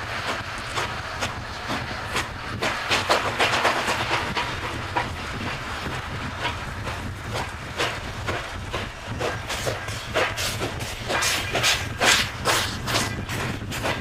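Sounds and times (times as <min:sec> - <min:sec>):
steam locomotive chuffing: 0:00.0 - 0:14.0
wagons rumbling on rails: 0:00.0 - 0:14.0.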